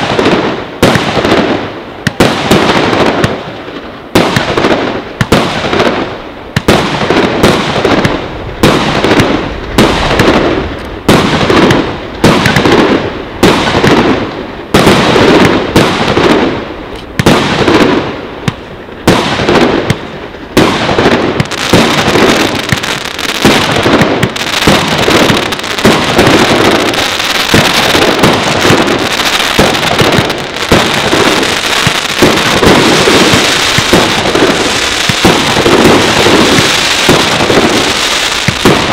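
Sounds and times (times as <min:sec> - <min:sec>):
fireworks crackling: 0:00.0 - 0:38.9
fireworks launching and bursting: 0:00.0 - 0:38.9.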